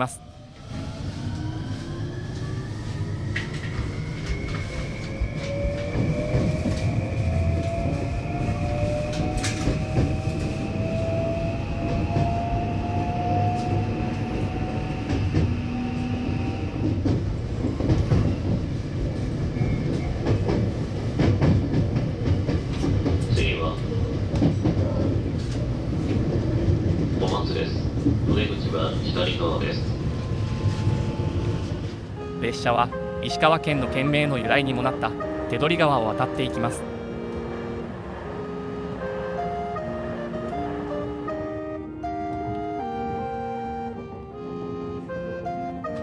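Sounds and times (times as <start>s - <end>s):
wheels rumbling on rails: 0.3s - 32.3s
rail joint clicks: 3.3s - 10.6s, 13.3s - 15.8s, 16.8s - 32.1s.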